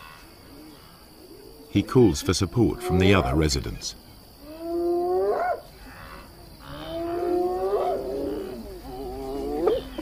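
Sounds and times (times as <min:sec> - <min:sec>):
hyena whooping: 0:06.7 - 0:10.0.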